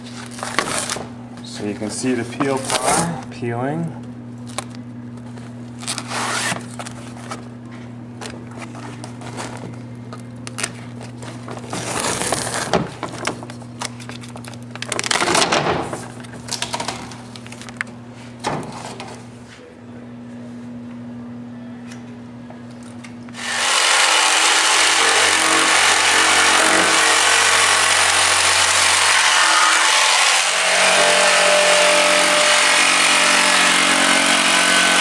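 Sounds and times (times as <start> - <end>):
plastic film crinkling: 8.5 - 17.8.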